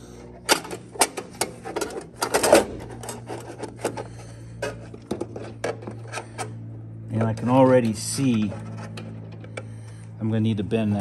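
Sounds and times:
metal parts clicking and knocking: 0.5 - 4.1.

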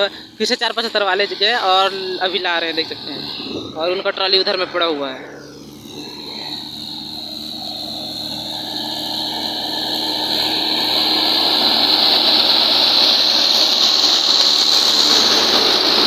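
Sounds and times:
tractor diesel engine under load: 0.0 - 16.0.

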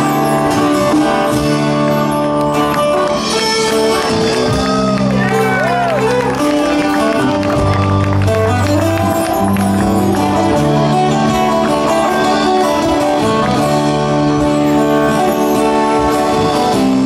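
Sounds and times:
bass line: 0.0 - 17.0
drums: 0.0 - 17.0
electric guitar: 0.0 - 17.0
strummed acoustic guitars: 0.0 - 17.0.

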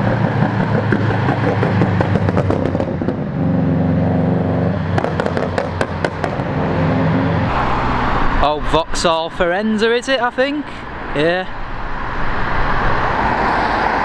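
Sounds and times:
car engines driving past: 0.0 - 14.0
exhaust pops and crackles: 4.9 - 6.5.

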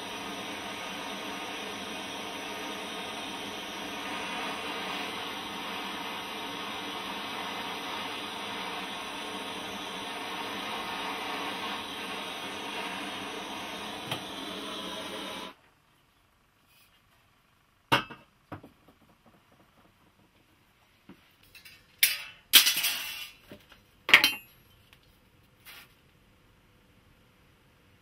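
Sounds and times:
blowtorch hissing: 0.0 - 15.6.

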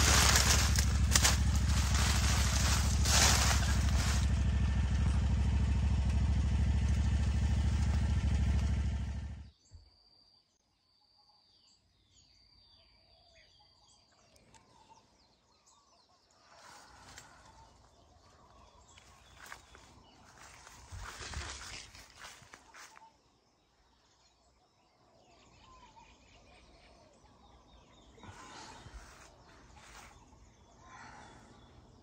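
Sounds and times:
loud steady humming noise: 0.0 - 9.3
birds chirping: 0.0 - 32.0
faint outdoor ambience: 0.0 - 32.0.

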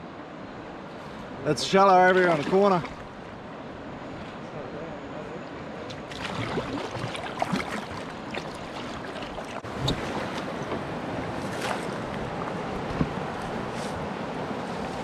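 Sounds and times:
river water rushing: 0.0 - 4.7, 5.4 - 15.0
paddle strokes splashing: 2.0 - 4.4, 5.9 - 15.0.

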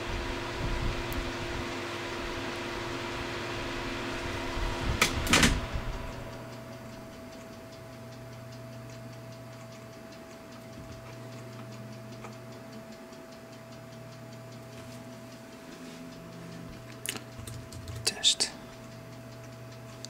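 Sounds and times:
electrical hum: 0.0 - 20.0
faint rapid ticking: 6.2 - 20.0.

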